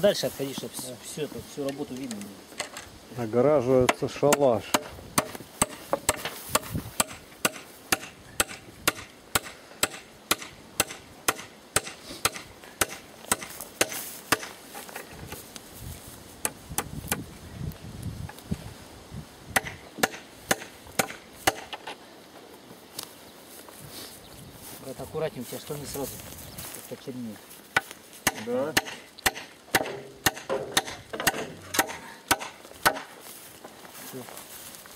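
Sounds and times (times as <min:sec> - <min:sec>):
hammer driving nails into wood: 0:03.9 - 0:14.5, 0:28.2 - 0:33.1.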